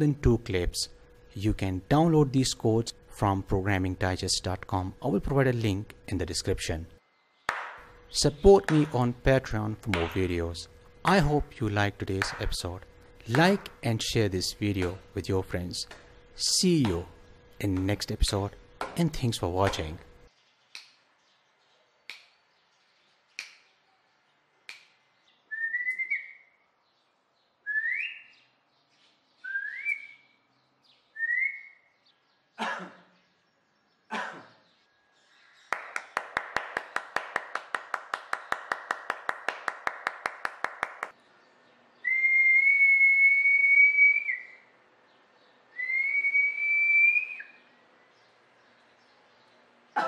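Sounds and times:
hands clapping: 7.5 - 7.9, 8.6 - 9.0, 12.2 - 12.6, 13.3 - 13.8, 20.7 - 21.0, 22.1 - 22.3, 23.4 - 23.6, 24.7 - 25.0, 35.7 - 41.2
person whistling: 42.1 - 44.6.

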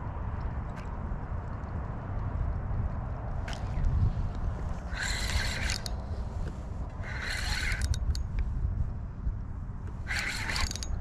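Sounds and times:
steady low rumble: 0.0 - 11.0
fishing reel buzzing: 4.8 - 6.1, 7.0 - 8.3, 10.0 - 11.0.

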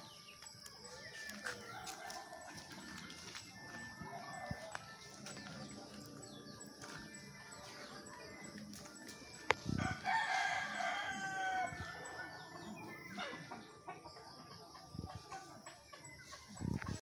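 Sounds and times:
rooster crowing: 1.3 - 4.8, 9.8 - 13.2.

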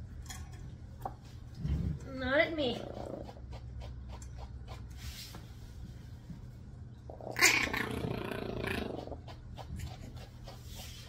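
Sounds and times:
steady low hum: 0.0 - 11.0
puppy growling: 2.6 - 4.3, 7.1 - 10.3.

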